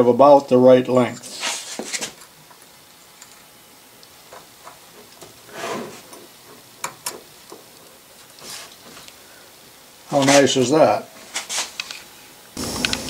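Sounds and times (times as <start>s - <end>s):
soft rustle: 8.4s - 9.2s, 11.1s - 12.2s.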